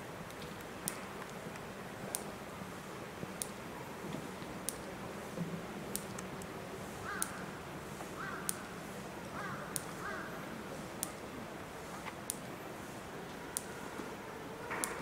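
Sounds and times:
faint steady hum: 0:00.0 - 0:15.0
crow cawing: 0:07.0 - 0:07.4, 0:08.2 - 0:08.6, 0:09.4 - 0:10.4.

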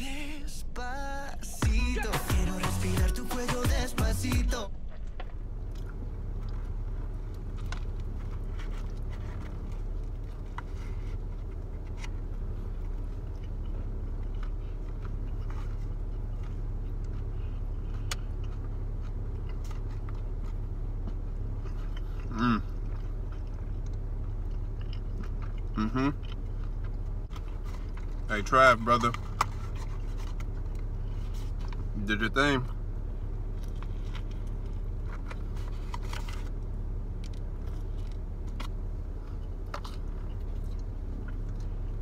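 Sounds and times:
person humming: 0:00.0 - 0:04.7, 0:25.8 - 0:26.2
car cabin hum: 0:00.0 - 0:42.0
person chewing: 0:05.6 - 0:28.3, 0:33.4 - 0:42.0.

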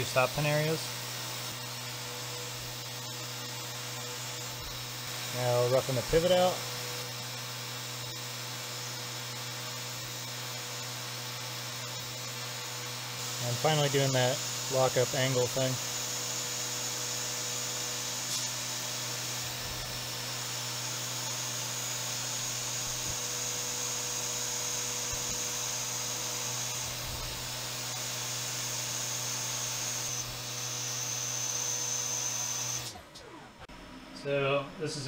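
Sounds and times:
machine hum: 0:00.0 - 0:35.0
milling spindle high whine: 0:00.0 - 0:35.0.

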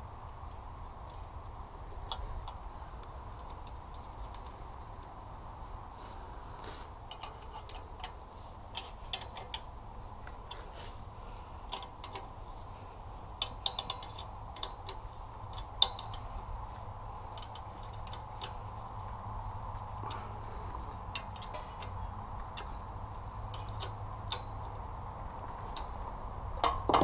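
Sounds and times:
low background noise: 0:00.0 - 0:27.0
wrenches clinking against metal: 0:07.1 - 0:10.8, 0:11.6 - 0:12.7, 0:13.4 - 0:19.0, 0:19.8 - 0:22.8, 0:23.4 - 0:25.0.

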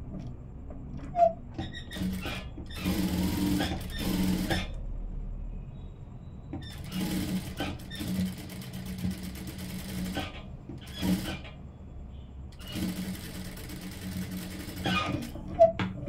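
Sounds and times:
sewing machine stitching: 0:01.0 - 0:04.8, 0:06.6 - 0:11.6, 0:12.5 - 0:15.8.

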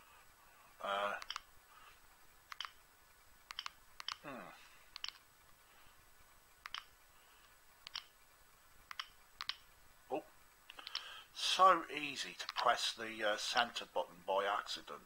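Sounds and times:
man humming: 0:04.2 - 0:04.7.

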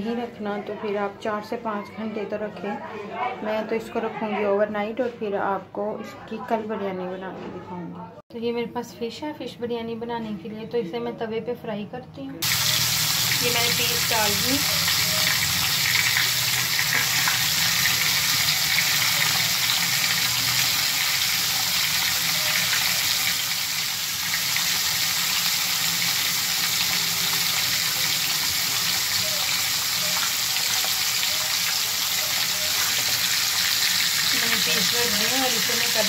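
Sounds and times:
fish sizzling in oil: 0:12.4 - 0:36.0.

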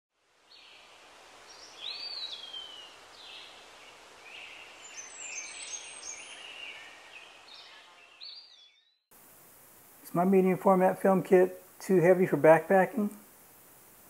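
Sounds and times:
steady outdoor hiss: 0:00.1 - 0:14.0
birds singing and calling: 0:01.5 - 0:03.6, 0:04.3 - 0:09.0
overlapping bird chirps: 0:04.3 - 0:09.1.

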